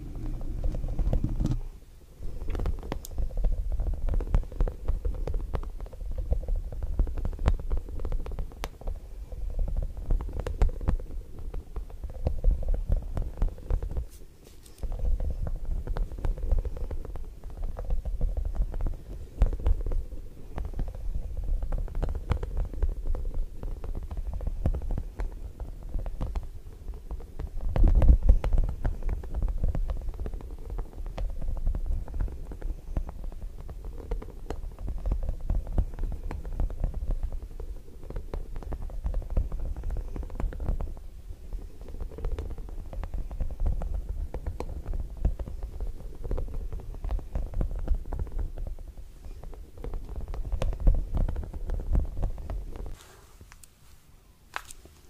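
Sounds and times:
rubber ball squeezed against microphone: 0.0s - 1.7s.

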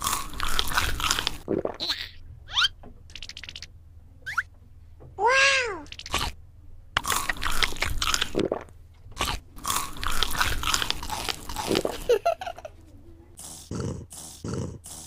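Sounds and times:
cartoon crunching and chewing: 0.0s - 1.8s, 5.9s - 6.4s, 7.0s - 12.2s, 13.4s - 15.0s.

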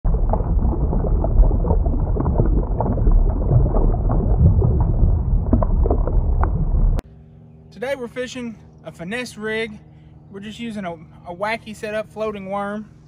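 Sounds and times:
bubbling pops: 0.0s - 7.0s
low underwater rumble: 0.0s - 7.0s.

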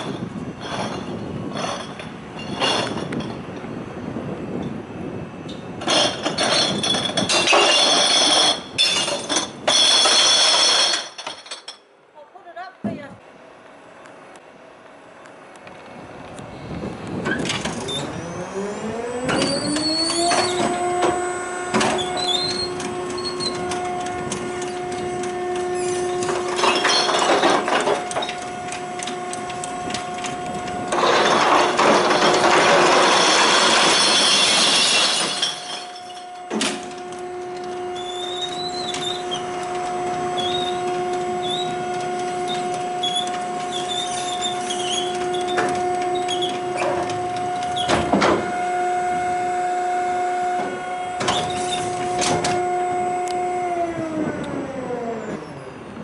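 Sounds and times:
glass bottles crashing and shattering: 6.3s - 11.8s, 31.3s - 36.2s
electric lift motor whine: 14.6s - 56.0s.

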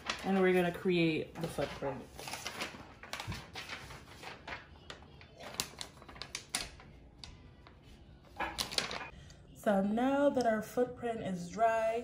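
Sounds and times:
paper being handled: 0.0s - 9.1s.

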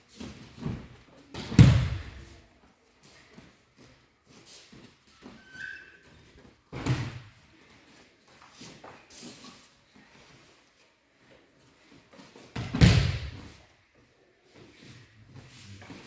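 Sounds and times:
body thudding on gym mats: 0.3s - 2.4s, 6.7s - 7.4s, 12.6s - 13.6s.

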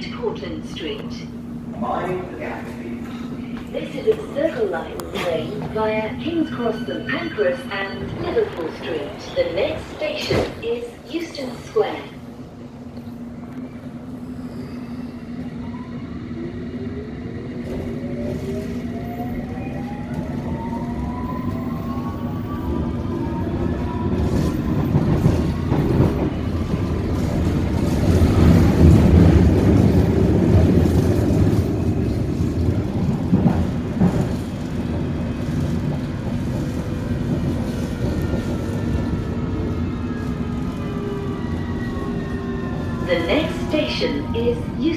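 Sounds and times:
wheels rumbling on track: 16.7s - 44.9s.

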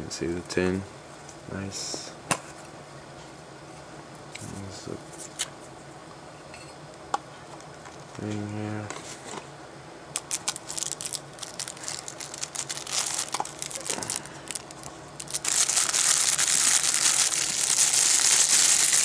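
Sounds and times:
plastic bag crinkling: 10.2s - 19.0s.

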